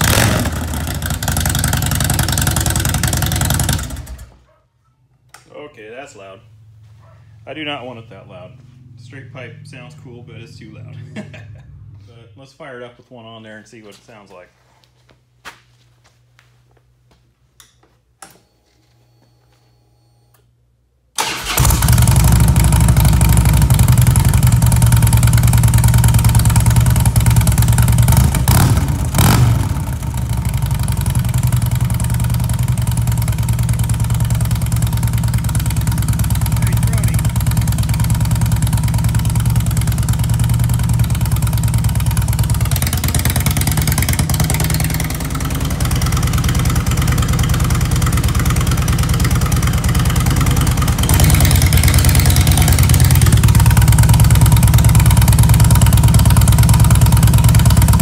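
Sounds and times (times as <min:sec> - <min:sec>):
motorcycle engine idling: 0:00.0 - 0:04.3, 0:21.5 - 0:58.0.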